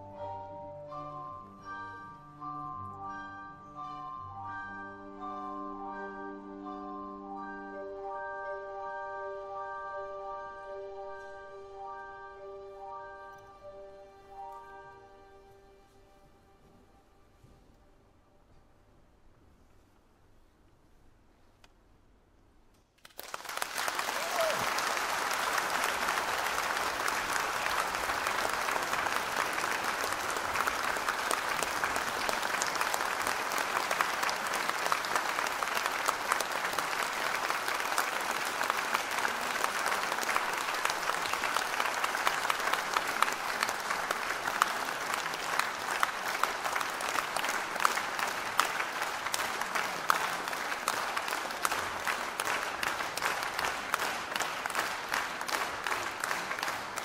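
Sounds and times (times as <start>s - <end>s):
audience applauding: 23.0s - 57.0s.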